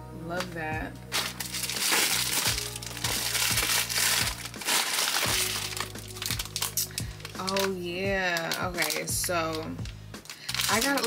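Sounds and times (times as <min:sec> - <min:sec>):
background music with beat: 0:00.5 - 0:10.7
plastic packaging crinkling: 0:01.1 - 0:11.0.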